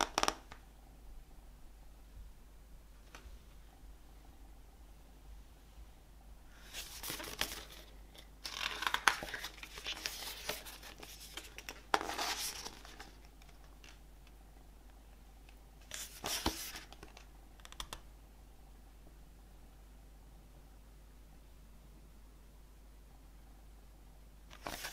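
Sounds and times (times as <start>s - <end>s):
packaging crinkling and tearing: 6.7s - 14.0s.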